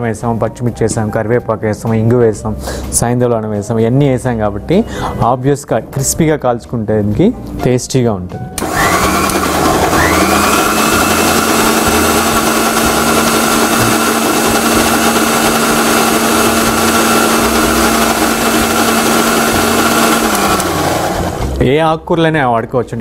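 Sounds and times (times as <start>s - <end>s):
mixer grinder motor running: 8.6s - 21.6s.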